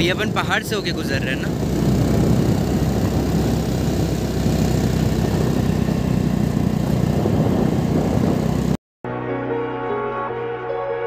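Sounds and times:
motorcycle engine running: 0.0 - 8.8
wind buffeting microphone: 0.0 - 8.8.

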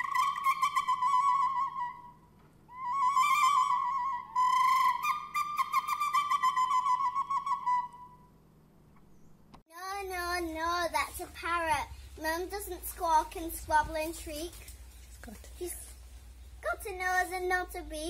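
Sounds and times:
flute-like trilled notes: 0.0 - 8.4.

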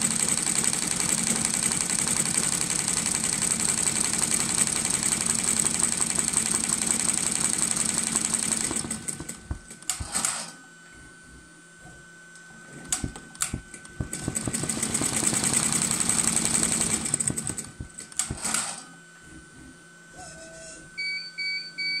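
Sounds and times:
embroidery machine stitching: 0.0 - 10.5, 12.8 - 18.8
machine clicks: 16.3 - 18.8.

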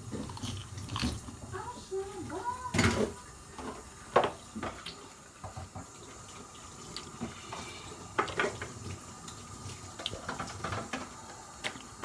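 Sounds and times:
dishes being washed: 0.0 - 12.0
tap running into sink: 2.7 - 6.2.

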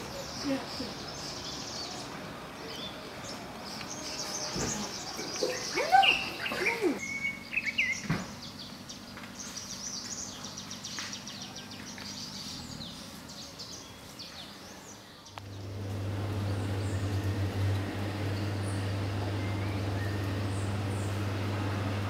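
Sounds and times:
steady low hum: 15.3 - 22.0.

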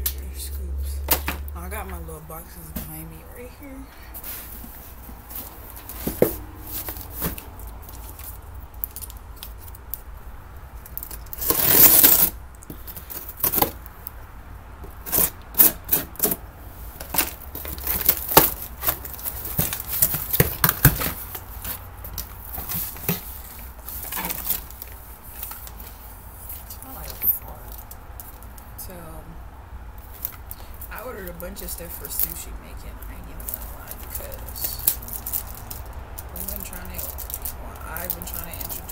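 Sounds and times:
cardboard rustling and knocking: 4.2 - 8.2, 17.0 - 24.8
cardboard tearing: 11.0 - 12.4, 15.0 - 16.4, 17.0 - 25.8.

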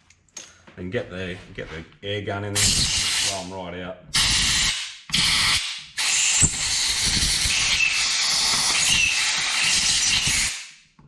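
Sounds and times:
compressed air blow gun hissing: 2.6 - 3.4, 4.2 - 10.6.

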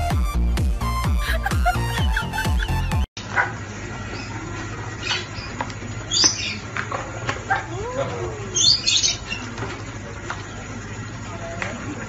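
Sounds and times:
lovebirds chirping: 5.0 - 6.7, 8.5 - 9.5.

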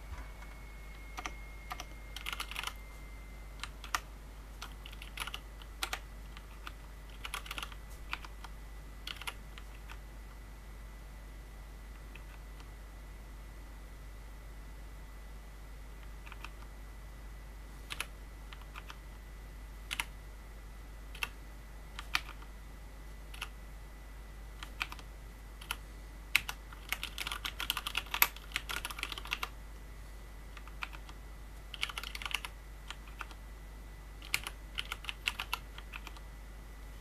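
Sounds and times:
keyboard typing: 0.0 - 2.8, 3.6 - 10.0, 12.0 - 12.7, 16.1 - 16.7, 17.9 - 19.0, 19.9 - 20.1, 21.1 - 21.4, 22.0 - 22.5, 23.3 - 23.5, 24.6 - 29.5, 30.5 - 33.4, 34.2 - 36.2.

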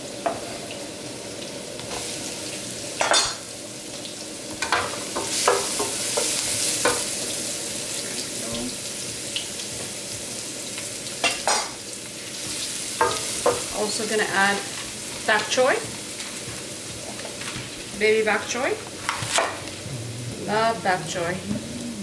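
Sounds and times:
food sizzling in hot oil: 0.0 - 19.8
spatula knocking and scraping wok: 4.6 - 7.1, 13.0 - 13.7.

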